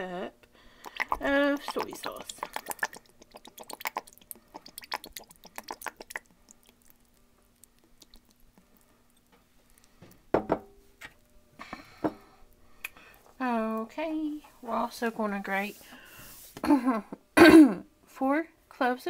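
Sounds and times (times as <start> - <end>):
faint hum: 0.0 - 19.0
liquid glugging from a bottle: 0.8 - 7.1, 7.7 - 8.6
knock: 10.4 - 10.7.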